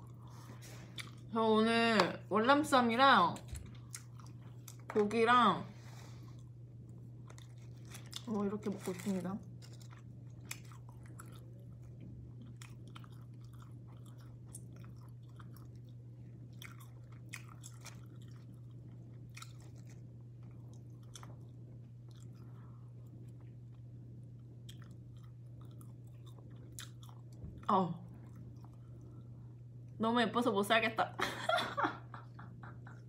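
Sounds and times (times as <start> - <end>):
person chewing: 0.0 - 1.3, 3.5 - 4.9, 6.2 - 8.4, 9.4 - 27.4, 28.2 - 29.3
low hum: 0.0 - 33.0.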